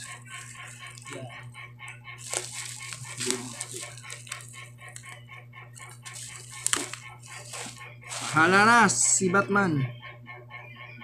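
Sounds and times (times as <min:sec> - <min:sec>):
plastic packaging crinkling: 0:00.0 - 0:01.6, 0:02.2 - 0:08.7
steady low hum: 0:00.0 - 0:11.0.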